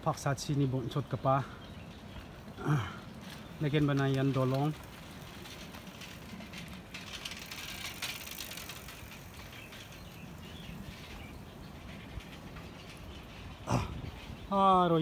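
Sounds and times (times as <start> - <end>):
soft outdoor hush: 0.0 - 15.0
bicycle freewheels ticking: 4.0 - 14.9.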